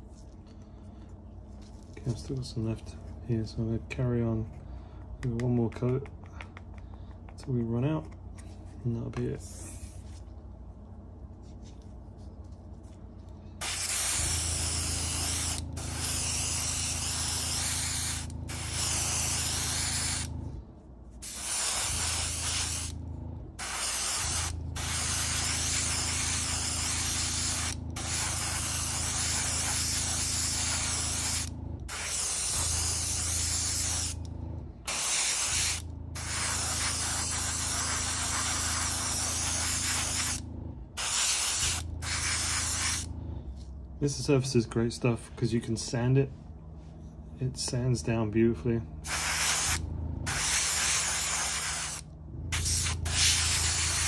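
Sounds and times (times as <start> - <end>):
low hum: 0.0 - 54.0
airbrush spraying hiss: 13.6 - 20.3, 21.2 - 23.0, 23.6 - 34.2, 34.9 - 40.4, 41.0 - 43.1, 49.0 - 54.0.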